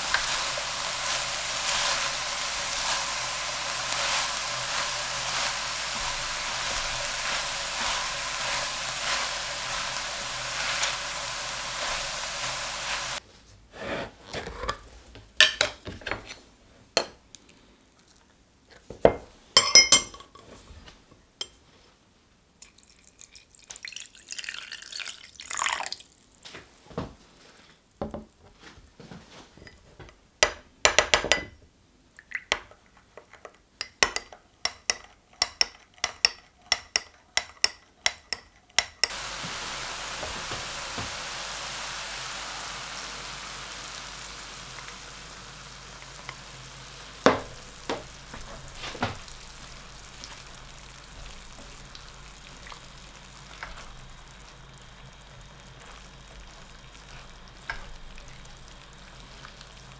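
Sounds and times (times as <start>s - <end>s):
meat and vegetables sizzling: 0.0s - 13.2s, 39.0s - 59.9s
spatula knocking pan: 0.0s - 13.2s, 47.2s - 50.6s
metal spoon clinking on glass: 19.6s - 20.4s.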